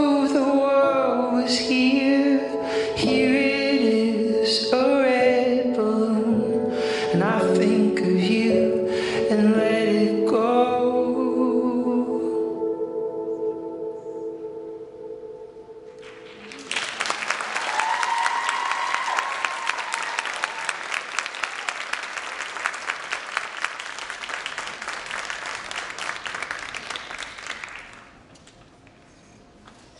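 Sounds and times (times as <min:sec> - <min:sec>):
audience applause: 0:16.0 - 0:28.2
high drawn-out cheer: 0:17.0 - 0:22.9.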